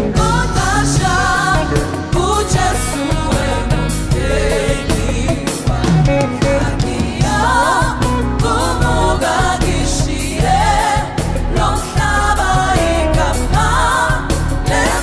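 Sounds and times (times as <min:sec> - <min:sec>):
bass: 0:00.0 - 0:15.0
drum kit beat: 0:00.0 - 0:15.0
gospel choir singing: 0:00.0 - 0:15.0.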